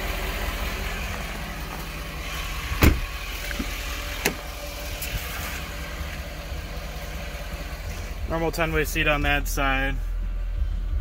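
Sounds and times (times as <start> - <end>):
truck engine idling: 0.0 - 11.0
door clunk: 2.8 - 4.4.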